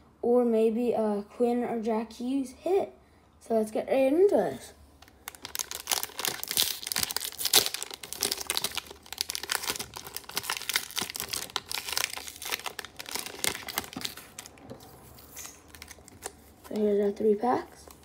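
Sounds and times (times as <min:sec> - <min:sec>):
plastic wrapping crinkling: 0:05.0 - 0:18.0.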